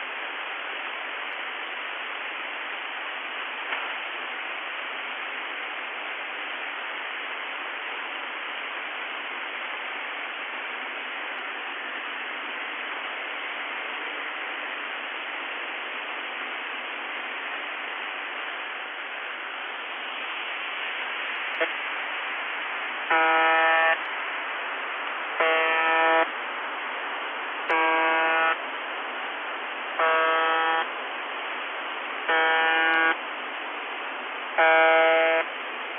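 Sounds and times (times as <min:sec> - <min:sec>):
shortwave radio static hiss: 0:00.0 - 0:35.9
radio buzzer tone: 0:23.1 - 0:24.0, 0:25.4 - 0:26.3, 0:27.7 - 0:28.6, 0:30.0 - 0:30.9, 0:32.3 - 0:33.2, 0:34.6 - 0:35.5.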